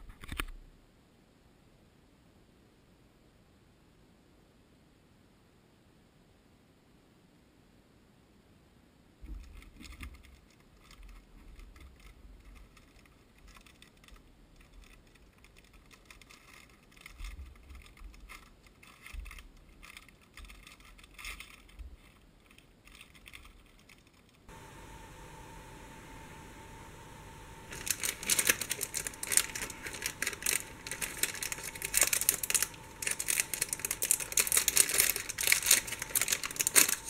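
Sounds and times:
steady electrical hum: 0:09.2 - 0:37.0
plastic bags crinkling: 0:24.9 - 0:37.0.

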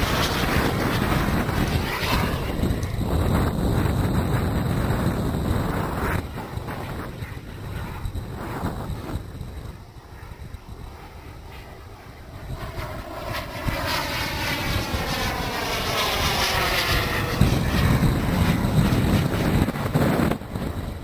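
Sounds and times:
model jet turbines passing: 0:00.0 - 0:21.0.

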